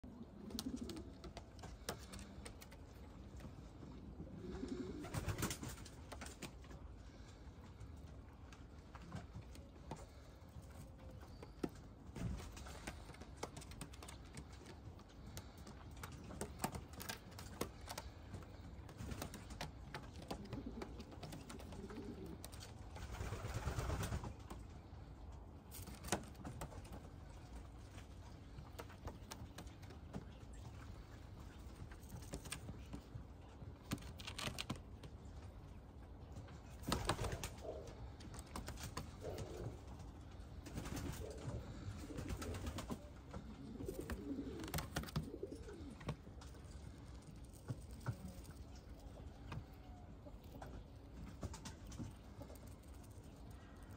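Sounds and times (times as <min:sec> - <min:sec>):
pigeon cooing: 0:00.0 - 0:02.7, 0:03.5 - 0:05.8, 0:15.3 - 0:24.2, 0:37.0 - 0:50.8.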